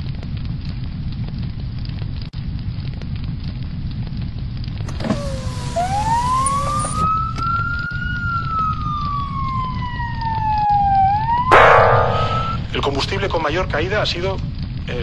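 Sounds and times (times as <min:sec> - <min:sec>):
brief hiss: 0:04.9 - 0:07.0
siren wailing: 0:04.9 - 0:12.8
steady low noise: 0:07.6 - 0:13.0.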